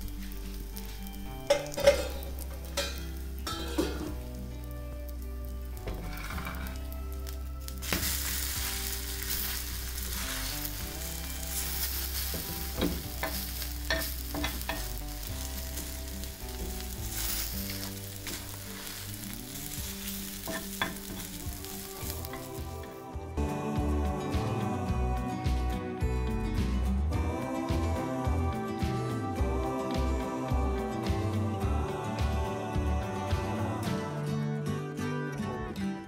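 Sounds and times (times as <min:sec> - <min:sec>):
food sizzling on a hot pan: 0:00.0 - 0:23.1
faint background music: 0:00.0 - 0:36.0.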